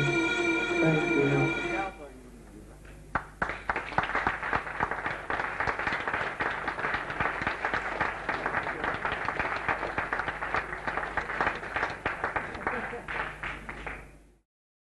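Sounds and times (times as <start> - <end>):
low electrical hum: 0.0 - 14.4
audience applauding: 3.1 - 14.2.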